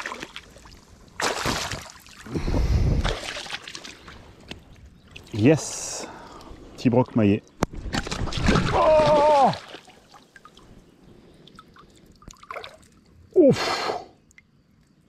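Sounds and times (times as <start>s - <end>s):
water dripping and splashing: 0.0s - 2.3s, 3.0s - 6.7s, 7.6s - 10.8s, 11.4s - 13.4s, 14.2s - 15.0s
man exhaling loudly: 13.4s - 14.2s.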